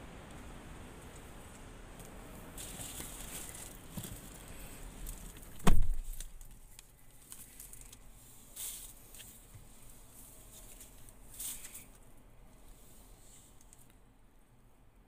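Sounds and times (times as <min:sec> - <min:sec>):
car door shutting: 0:05.5 - 0:06.2.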